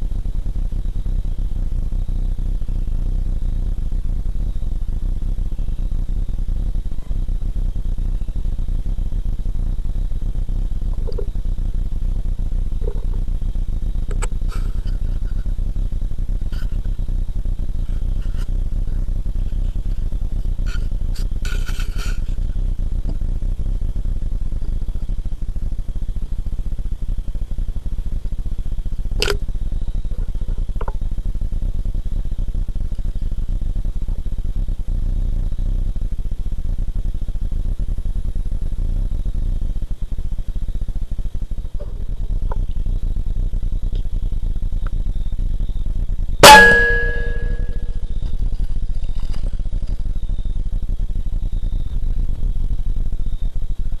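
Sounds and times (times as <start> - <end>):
steady low rumble: 0.0 - 37.8
air rifle shot with metallic ring: 46.4 - 47.9.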